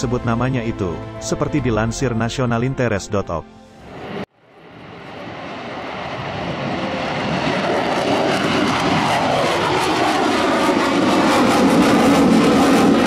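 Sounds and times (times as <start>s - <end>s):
jet flying low past: 3.6s - 13.0s.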